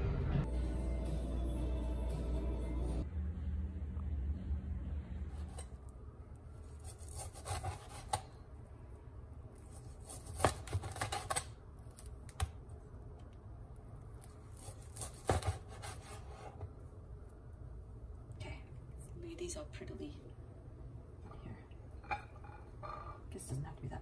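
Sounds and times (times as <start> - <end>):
knife sawing through meat: 14.8 - 16.5.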